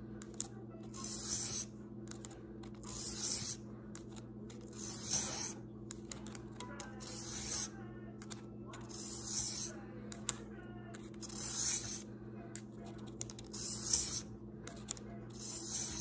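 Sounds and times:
blade scraping on sharpener: 0.9s - 1.7s, 2.7s - 5.6s, 7.0s - 7.7s, 8.8s - 9.7s, 11.0s - 12.0s, 13.4s - 14.3s, 15.3s - 16.0s.

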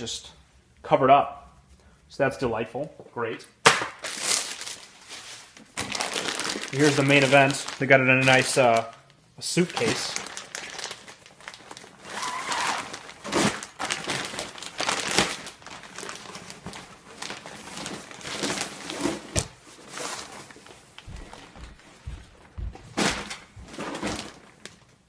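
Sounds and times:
nylon bag crinkling and rustling: 4.0s - 22.0s, 23.0s - 25.0s.

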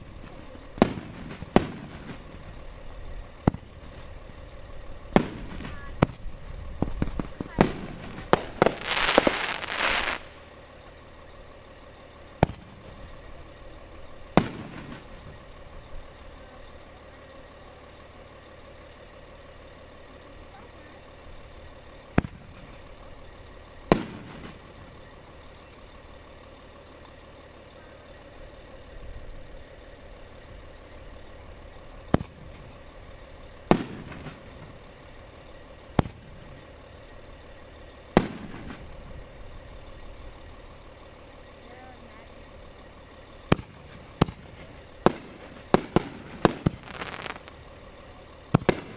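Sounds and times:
firework bangs: 0.0s - 4.4s, 5.0s - 10.5s, 12.4s - 13.3s, 14.2s - 15.4s, 22.0s - 23.2s, 23.8s - 25.2s, 32.0s - 32.8s, 33.5s - 35.2s, 35.8s - 36.8s, 38.0s - 39.4s, 43.4s - 47.8s, 48.4s - 48.9s
fireworks crackling: 0.0s - 48.9s.

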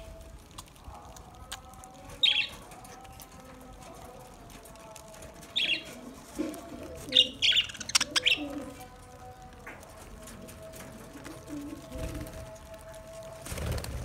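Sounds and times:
budgerigars chirping and squawking: 7.2s - 8.4s.

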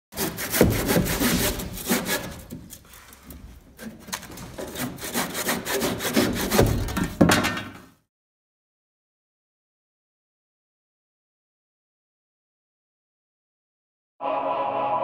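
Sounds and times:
hand tool scraping wood: 0.1s - 7.3s.

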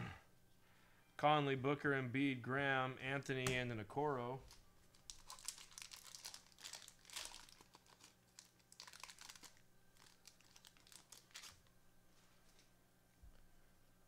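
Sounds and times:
foil wrapper crinkling and tearing: 4.5s - 11.7s.

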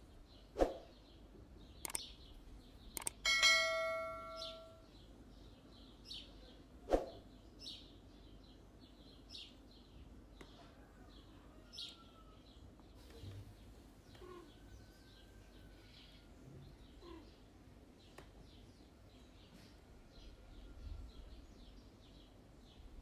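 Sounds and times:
quick clicks: 1.8s - 2.1s, 2.9s - 3.2s
high bird chirps: 1.8s - 5.0s
bell ding: 3.3s - 4.8s.

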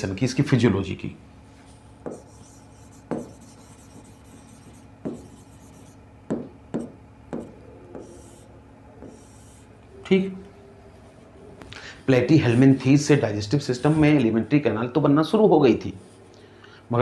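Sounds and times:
marker scratching: 1.6s - 6.0s, 6.7s - 9.7s
marker tapping on whiteboard: 2.0s - 4.1s, 5.0s - 5.4s, 6.3s - 8.4s, 9.0s - 9.4s.

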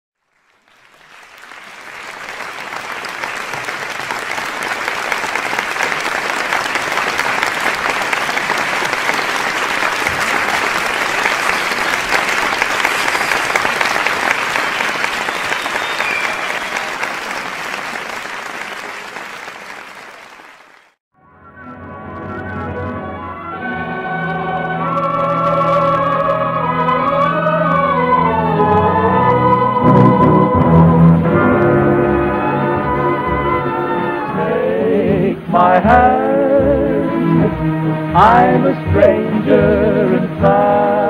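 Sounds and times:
audience applauding: 0.2s - 21.0s, 24.3s - 29.4s.

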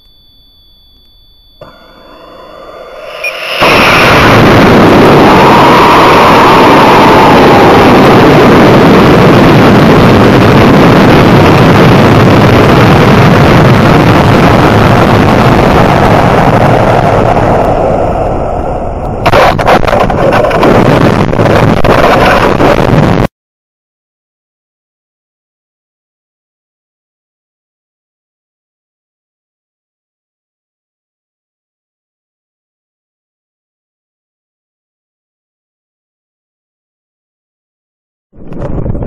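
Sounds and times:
faint steady high tones: 0.0s - 9.1s
loud rush of rocket motor and air: 2.0s - 23.0s.

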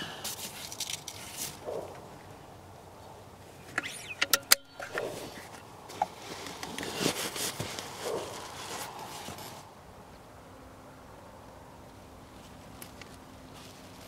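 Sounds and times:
sharp metallic clicks: 3.7s - 5.2s.

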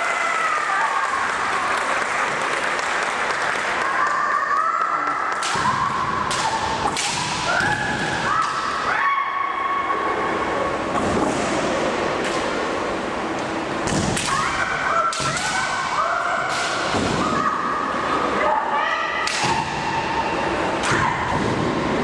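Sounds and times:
people shouting: 3.8s - 10.3s, 14.2s - 22.0s
bamboo sword strikes cracking: 6.3s - 7.4s.

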